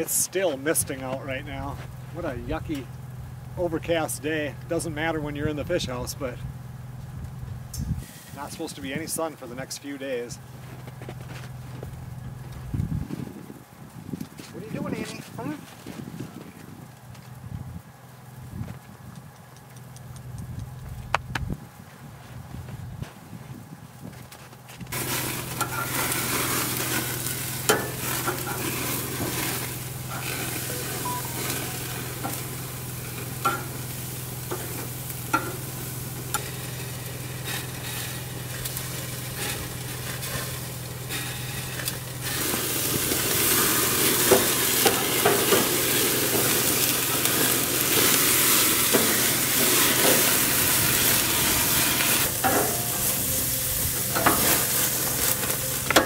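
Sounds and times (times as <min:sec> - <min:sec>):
steady low hum: 0:00.0 - 0:14.3, 0:15.8 - 0:56.0
food sizzling in a pan: 0:24.9 - 0:56.0.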